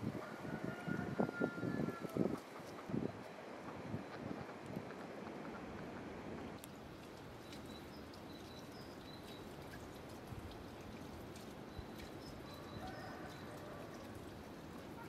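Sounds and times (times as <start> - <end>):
steady outdoor hiss: 0.0 - 15.0
small birds chirping: 7.4 - 9.8.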